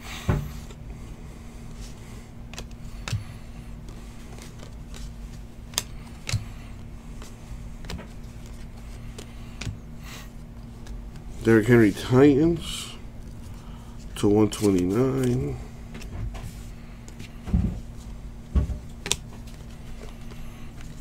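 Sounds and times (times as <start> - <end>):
steady low hum: 0.0 - 21.0
cards clicking and slapping: 2.5 - 6.6, 7.2 - 9.8, 14.5 - 16.1, 18.9 - 21.0.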